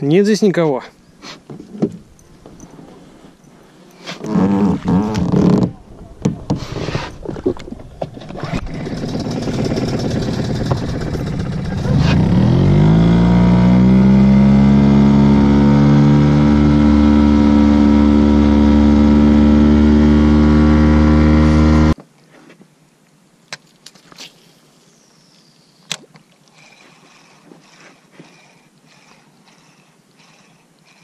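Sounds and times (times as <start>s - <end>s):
boat motor running: 7.6s - 22.0s, 26.6s - 31.0s.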